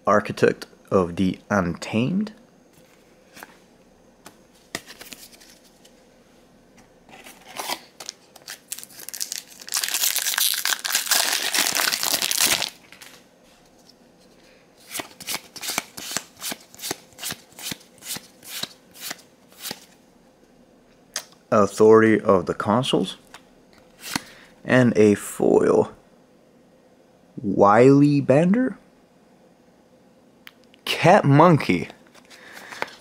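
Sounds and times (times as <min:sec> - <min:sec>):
foil wrapper crackling: 0:08.0 - 0:13.2.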